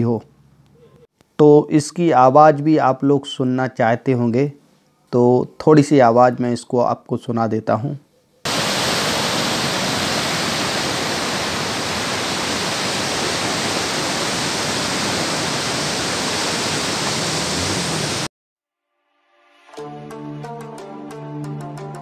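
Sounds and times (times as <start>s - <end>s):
water rushing and churning: 8.5s - 18.3s.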